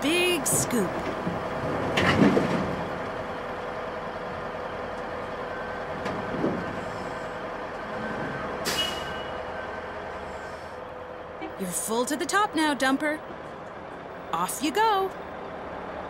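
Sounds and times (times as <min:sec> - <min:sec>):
diesel engine drone: 0:00.0 - 0:16.0.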